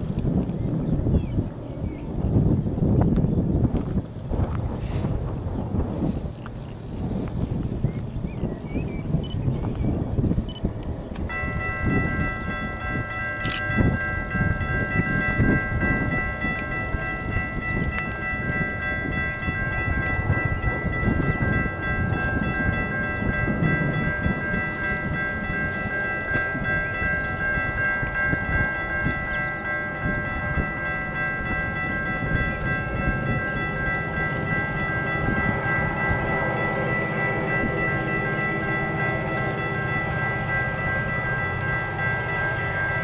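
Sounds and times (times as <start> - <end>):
diesel locomotive rumble: 0.0 - 43.0
wind buffeting microphone: 0.0 - 43.0
level crossing bells ringing: 11.2 - 43.0.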